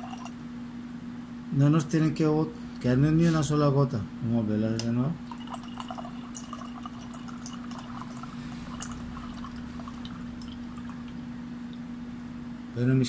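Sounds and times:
water pouring into metal cup: 0.0 - 0.4, 5.2 - 11.2
constant low hum: 0.0 - 13.0.

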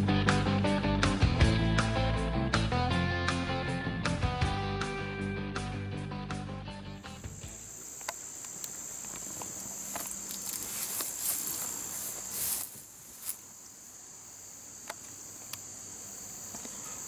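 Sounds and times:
insects chirping: 6.8 - 17.0.

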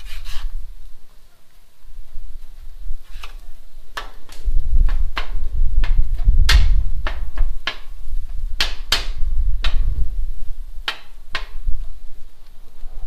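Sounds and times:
steady low rumble: 4.5 - 13.0.

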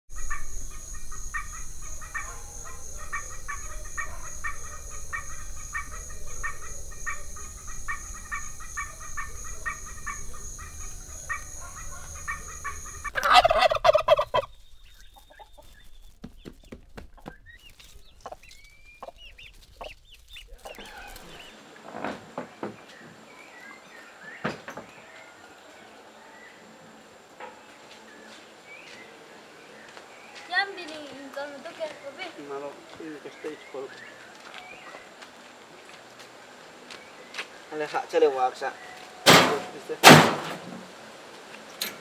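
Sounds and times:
steady high drone: 0.1 - 13.2
fowl calling: 0.1 - 14.5, 19.8 - 21.5.

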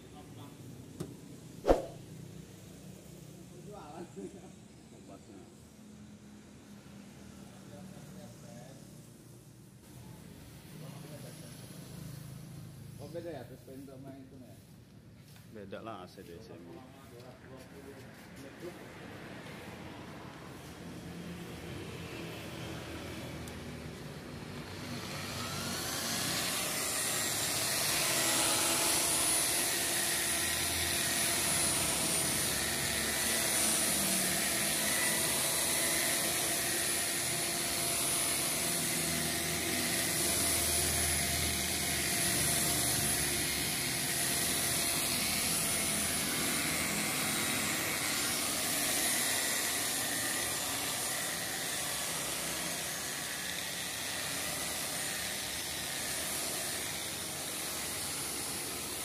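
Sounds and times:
car polisher motor whine: 24.5 - 59.0.

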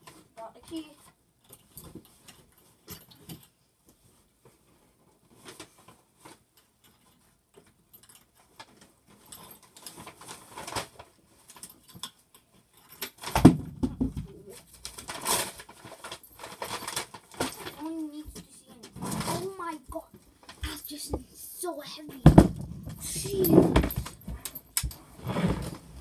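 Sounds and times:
objects clicking and rustling: 0.0 - 26.0
loud thump: 22.2 - 24.0.

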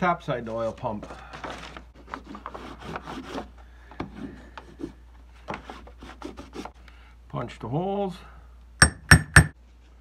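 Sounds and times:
hammer tapping: 8.8 - 9.6.

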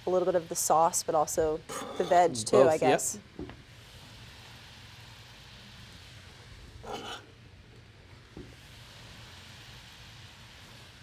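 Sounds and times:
gas range hiss and hum: 0.0 - 11.0
spoon scraping a pan: 6.9 - 7.3.

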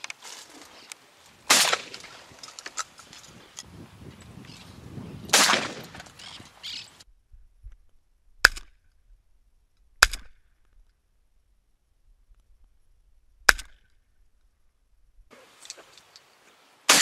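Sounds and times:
shotgun shots: 1.5 - 2.2, 5.3 - 6.1.

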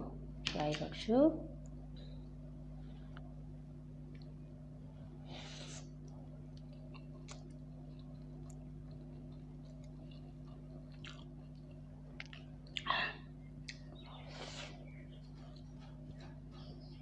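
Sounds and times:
steady low hum: 0.0 - 17.0
soft chewing with mouth clicks: 4.0 - 17.0.

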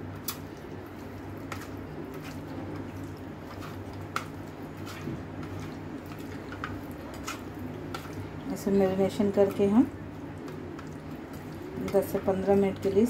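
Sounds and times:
low steady hum: 0.0 - 13.0
wet squishing of raw chicken: 9.2 - 12.7.

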